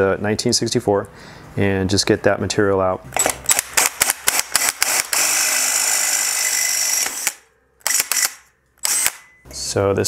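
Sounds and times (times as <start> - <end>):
cordless drill cutting metal: 3.2 - 9.3.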